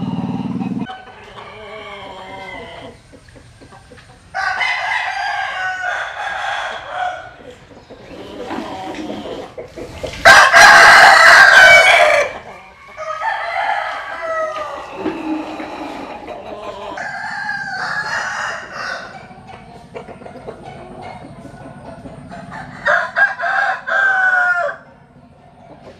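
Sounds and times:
faint roosters crowing: 0.0 - 3.1, 4.2 - 19.7, 20.8 - 25.1
rooster crowing loud and close: 4.4 - 7.4, 10.2 - 16.0, 17.0 - 19.3, 22.5 - 24.9.

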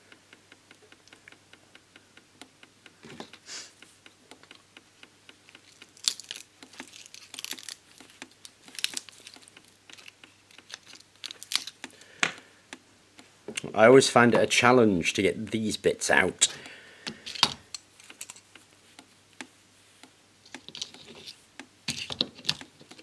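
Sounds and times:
pliers scraping and rustling: 5.6 - 12.0, 17.1 - 18.6, 20.5 - 23.0.

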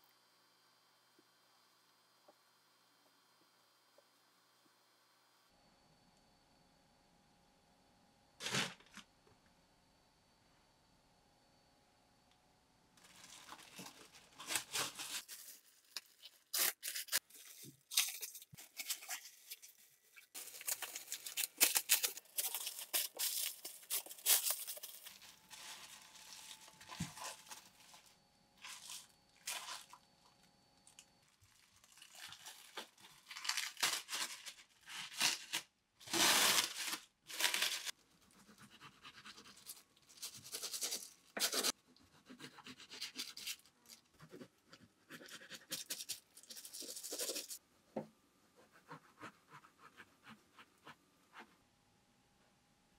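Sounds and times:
plastic cling wrap rustling: 8.4 - 9.0, 13.0 - 38.4.

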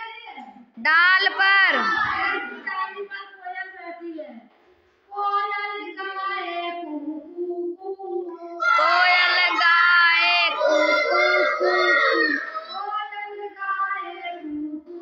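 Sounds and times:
children singing: 1.8 - 3.1, 5.1 - 15.0
woman singing: 5.1 - 10.6, 12.8 - 15.0.

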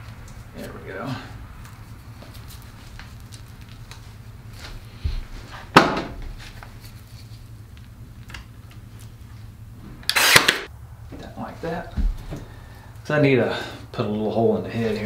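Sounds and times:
nail gun firing into log: 10.1 - 10.7.

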